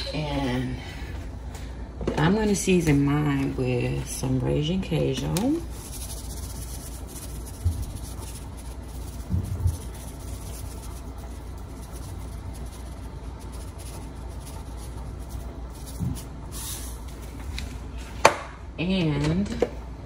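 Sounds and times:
low hum: 0.0 - 18.9
scratchy sprinkling of seasoning: 5.1 - 17.7
canister shaking hiss: 5.4 - 17.4.

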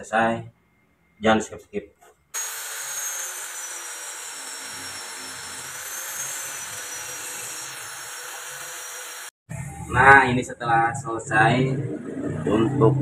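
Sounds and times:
angle grinder grinding steel: 2.4 - 9.4.

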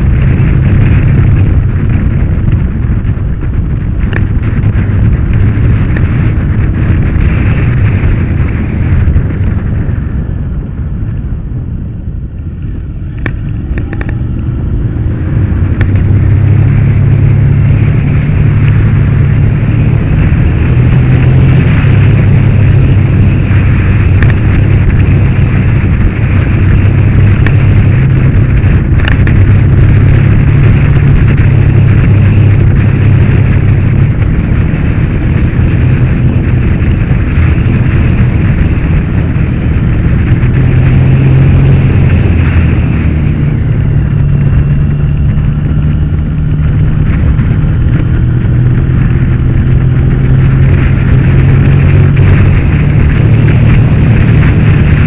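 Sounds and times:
motorcycle engine running: 0.0 - 55.0
wind noise on microphone: 0.0 - 55.0.

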